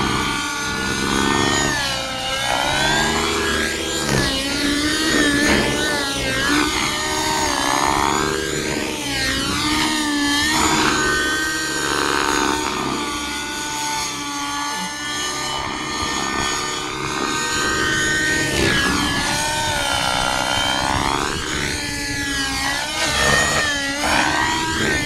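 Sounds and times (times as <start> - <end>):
model helicopter whining: 0.0 - 25.0.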